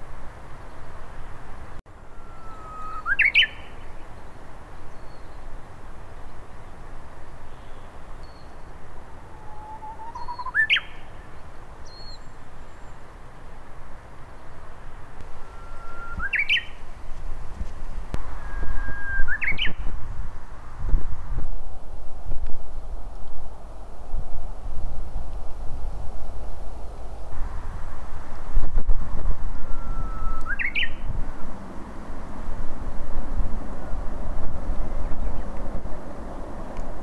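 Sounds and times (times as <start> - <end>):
bush warbler singing: 1.9 - 13.2, 14.4 - 17.2, 18.0 - 20.1, 29.2 - 37.0.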